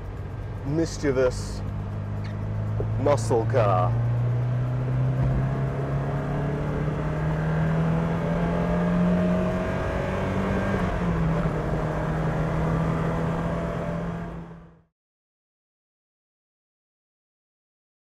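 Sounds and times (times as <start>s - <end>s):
car engine pulling from inside cabin: 0.6s - 14.7s.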